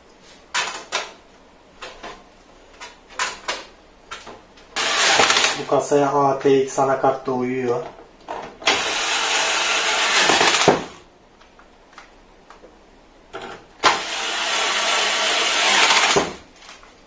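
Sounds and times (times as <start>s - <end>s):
electric screwdriver running: 4.8s - 5.6s, 8.6s - 11.0s, 13.8s - 16.4s.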